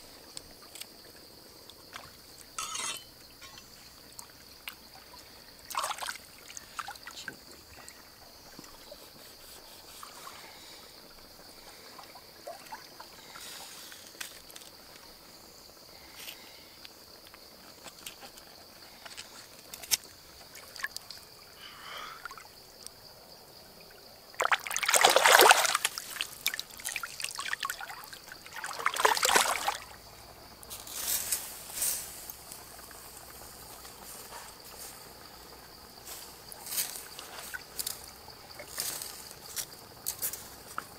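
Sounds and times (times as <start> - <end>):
splashing in shallow water: 4.2 - 10.6, 24.3 - 30.0.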